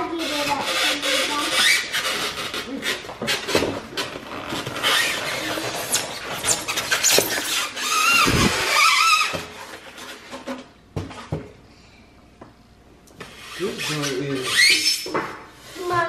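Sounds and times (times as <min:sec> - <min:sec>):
high squeak: 0:00.1 - 0:04.1, 0:04.8 - 0:10.6, 0:13.3 - 0:15.9.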